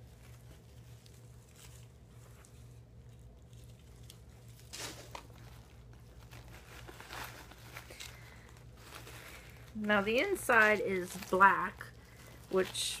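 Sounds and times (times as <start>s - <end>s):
bags rustling: 0.0s - 13.0s.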